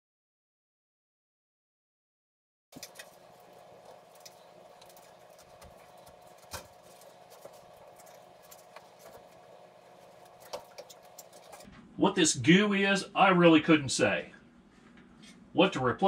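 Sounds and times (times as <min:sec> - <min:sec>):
clicks and scrapes on vent pipe: 0:02.8 - 0:11.7
faint steady hum: 0:02.8 - 0:15.9.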